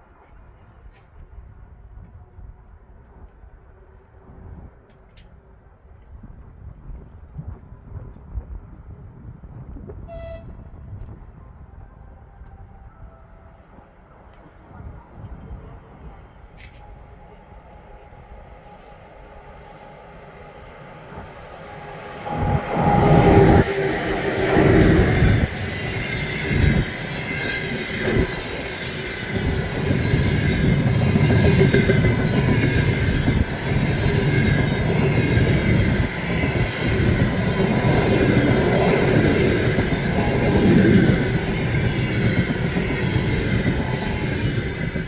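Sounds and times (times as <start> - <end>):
steady high whine: 16.4 - 45.0.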